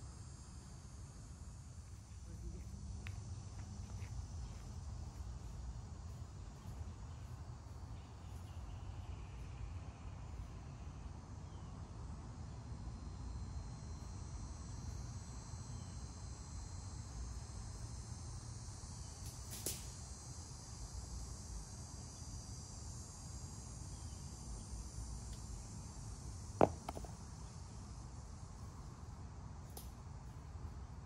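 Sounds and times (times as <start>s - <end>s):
insect chorus: 0.0s - 31.0s
disc landing on dirt: 26.6s - 27.5s.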